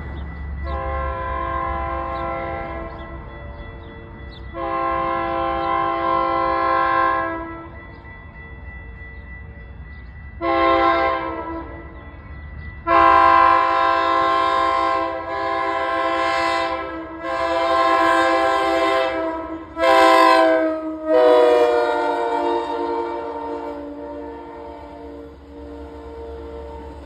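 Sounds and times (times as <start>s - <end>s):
low train rumble: 0.0s - 27.0s
train air horn blasts: 0.6s - 3.1s, 4.5s - 7.8s, 10.4s - 11.9s, 12.8s - 27.0s.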